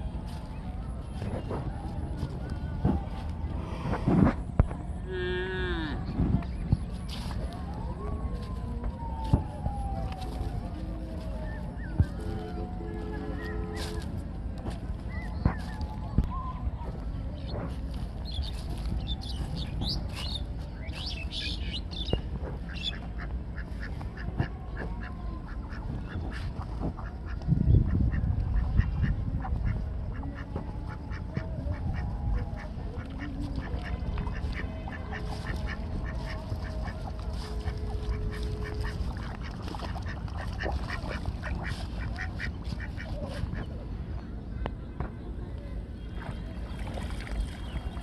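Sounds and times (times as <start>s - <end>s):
ducks calling: 18.3s - 43.7s.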